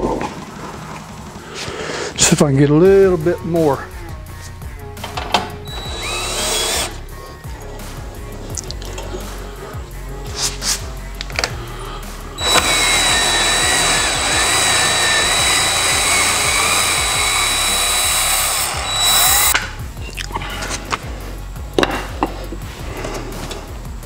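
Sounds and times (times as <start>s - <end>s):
cordless drill whining: 5.6s - 7.0s, 12.4s - 19.7s.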